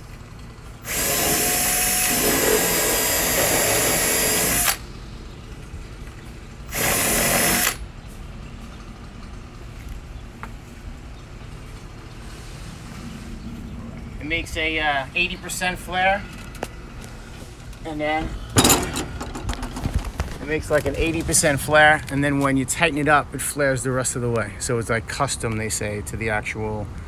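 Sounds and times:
cordless drill spinning: 0.8 - 4.9, 6.7 - 7.8.

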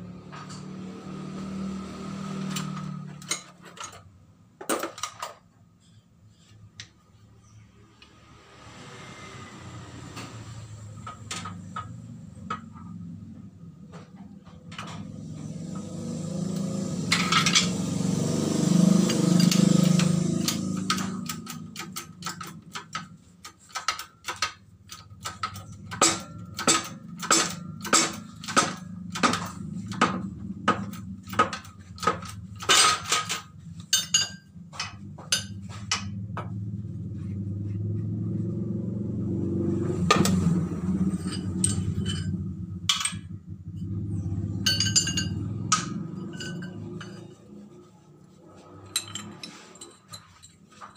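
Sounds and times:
metal parts clinking: 2.5 - 5.4, 30.9 - 36.1, 40.2 - 47.8, 48.6 - 50.9
loud rumbling noise: 35.2 - 49.4.

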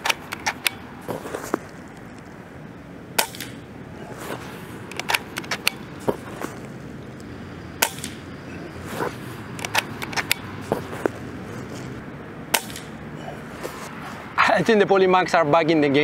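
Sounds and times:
air rifle shots: 3.1 - 6.6, 7.8 - 8.3, 9.5 - 10.9, 12.4 - 13.0.

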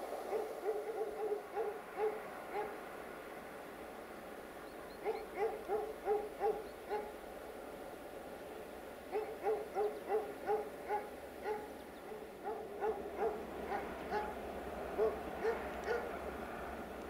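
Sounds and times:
dog barking: 0.3 - 2.8, 5.0 - 7.2, 9.1 - 14.4, 15.0 - 16.1.

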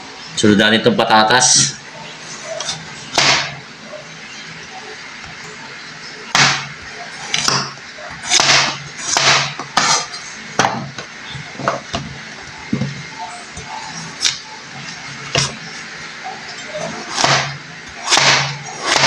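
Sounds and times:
knife chopping on cutting board: 7.4 - 10.9, 17.1 - 19.0.

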